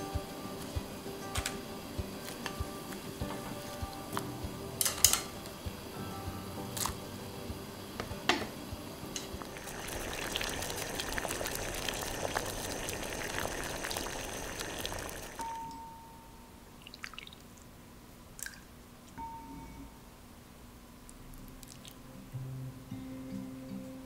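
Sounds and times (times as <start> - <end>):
soup bubbling at a boil: 8.9 - 15.5, 16.8 - 17.7.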